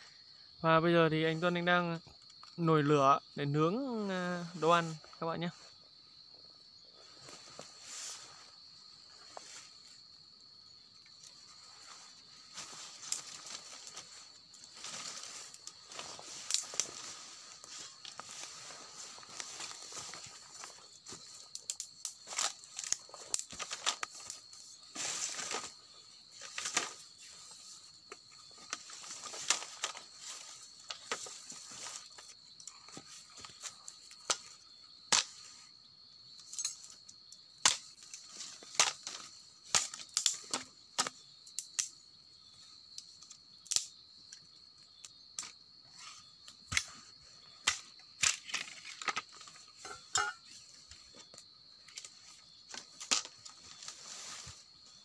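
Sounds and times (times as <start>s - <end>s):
campfire crackling and popping: 12.6s - 24.5s, 39.7s - 41.9s, 43.0s - 43.9s.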